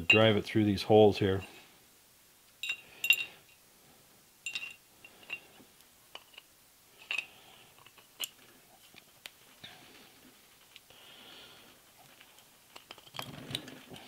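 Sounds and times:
metal parts clinking: 2.6 - 3.4, 4.5 - 8.4.

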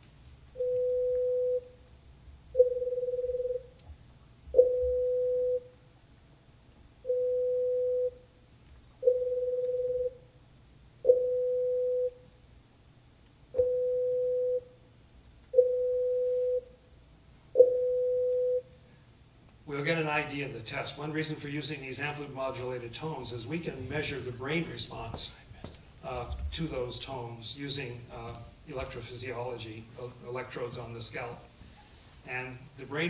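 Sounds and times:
pure test tones: 2.5 - 3.7, 9.0 - 10.2, 11.0 - 12.2, 17.5 - 18.7.

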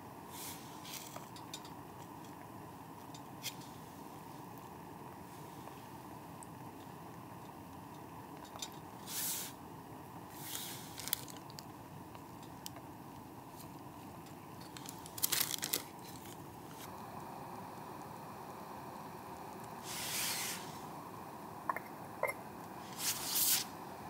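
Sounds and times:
faint background hiss: 0.0 - 24.0
rustling crunching handling noises: 10.4 - 11.7, 13.5 - 16.9.

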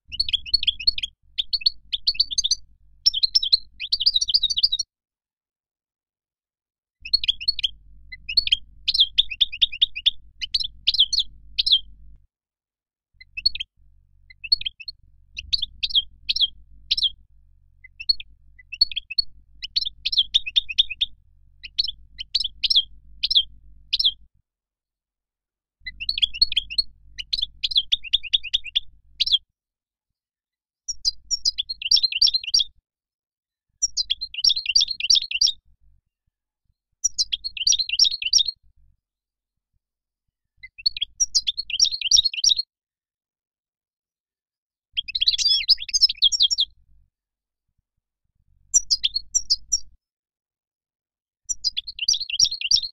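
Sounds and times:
bird twittering: 0.1 - 4.8, 7.0 - 11.9, 13.2 - 13.7, 14.3 - 17.2, 17.8 - 24.2, 25.8 - 29.4, 30.9 - 32.7, 33.8 - 35.6, 37.0 - 38.5, 40.6 - 42.6, 45.0 - 46.7, 48.7 - 49.9, 51.5 - 52.9.

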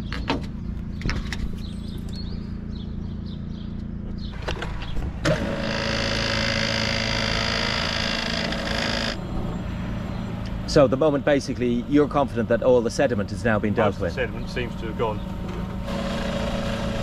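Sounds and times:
pump whirring: 4.3 - 17.0.

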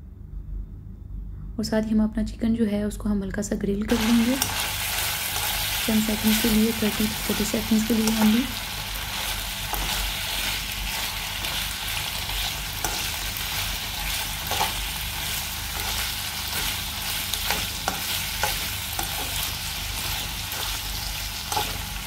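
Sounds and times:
chicken sizzling in oil: 3.9 - 22.0
spatula tapping and scraping pan: 17.4 - 19.5.

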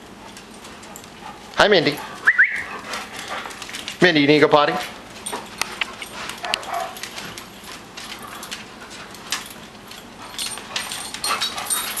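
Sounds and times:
dog claws clicking on tiles: 4.7 - 12.0.

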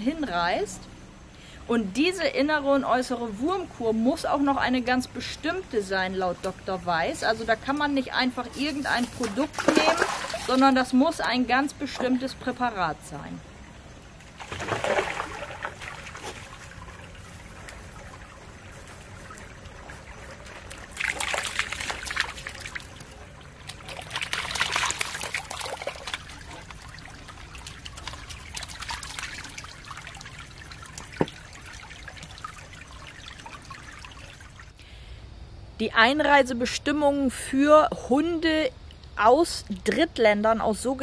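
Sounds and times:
creek trickling over stones: 4.3 - 12.9, 13.5 - 34.8
dog splashing through water: 8.5 - 10.7, 14.3 - 34.7.

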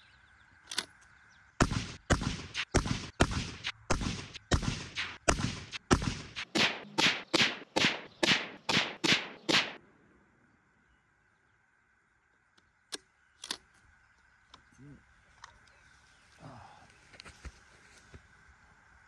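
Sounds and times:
rifle shots: 1.6 - 9.8.

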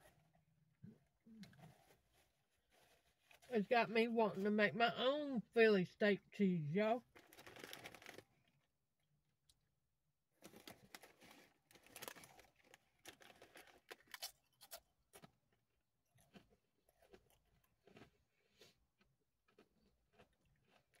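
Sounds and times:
foil chip bag crinkling: 7.1 - 8.6, 10.4 - 14.8.

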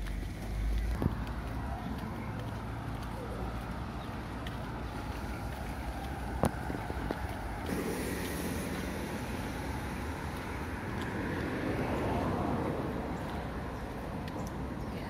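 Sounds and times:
vehicle driving past: 0.0 - 14.8
low rumble: 3.4 - 14.3.

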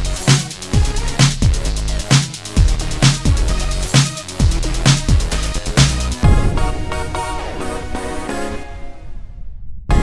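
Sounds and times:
electronic beat music: 0.0 - 9.0
deep kick drum: 6.2 - 6.8.

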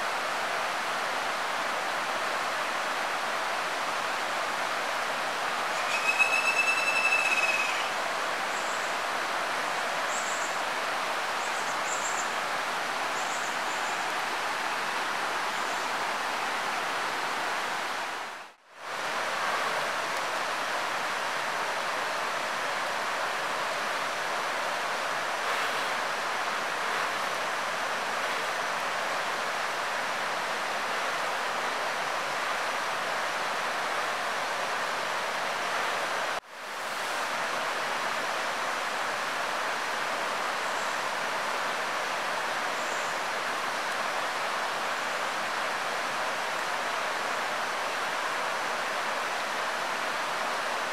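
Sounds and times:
forest stream rushing: 0.0 - 50.9
high whistling call: 5.8 - 7.9.

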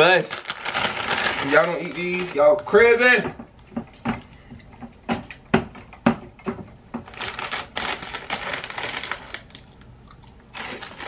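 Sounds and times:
corn chips crunching: 0.0 - 2.6, 7.1 - 11.0
chip bag crinkling: 0.0 - 2.7, 7.1 - 9.9, 10.5 - 11.0.

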